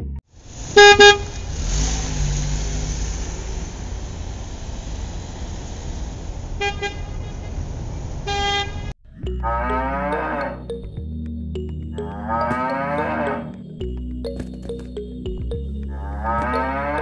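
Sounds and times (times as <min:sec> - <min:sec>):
cow mooing: 0:09.4 - 0:10.6, 0:12.0 - 0:13.6, 0:15.9 - 0:17.0.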